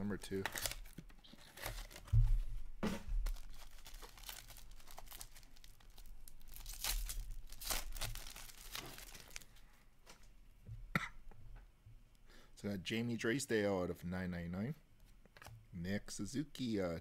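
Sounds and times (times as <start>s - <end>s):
foil wrapper ripping and crinkling: 0.2s - 2.2s, 3.2s - 9.5s.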